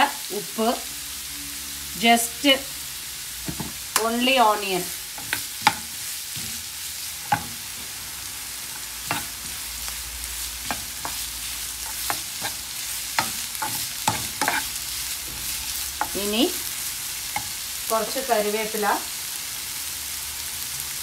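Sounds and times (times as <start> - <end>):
onions sizzling in frying pan: 0.0 - 21.0
ladle scraping and knocking pan: 3.5 - 3.8, 5.2 - 7.9, 9.0 - 9.6, 10.6 - 14.7.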